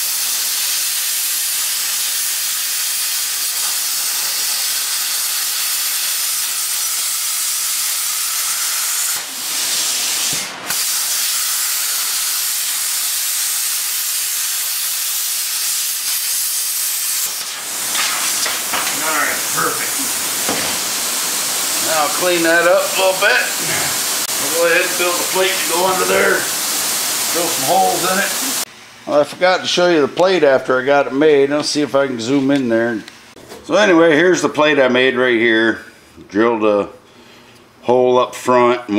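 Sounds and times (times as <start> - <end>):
plasma cutter hissing: 0.0 - 28.7.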